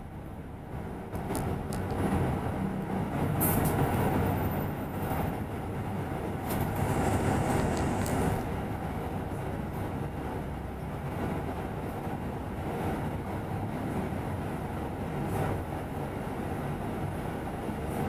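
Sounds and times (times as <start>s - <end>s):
bus engine rumble: 0.0s - 18.0s
rattles and clicks in cabin: 0.2s - 18.0s.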